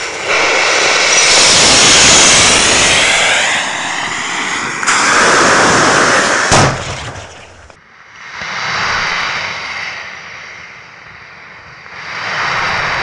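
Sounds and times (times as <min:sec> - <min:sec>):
firework motors hissing: 0:00.0 - 0:06.6
sharp bang: 0:06.4 - 0:07.8.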